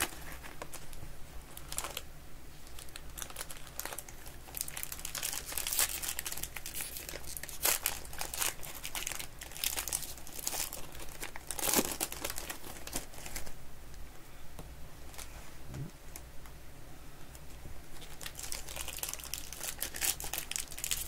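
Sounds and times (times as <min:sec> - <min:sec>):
foil wrappers tearing and crinkling: 0:00.0 - 0:13.5, 0:17.9 - 0:21.0.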